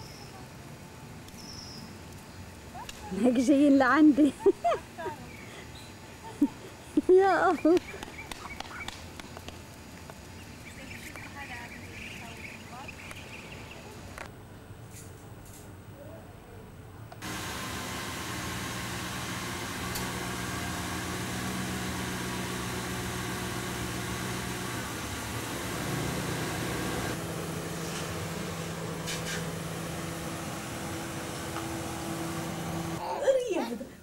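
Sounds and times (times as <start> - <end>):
car engine starting and idling: 17.2 - 33.0.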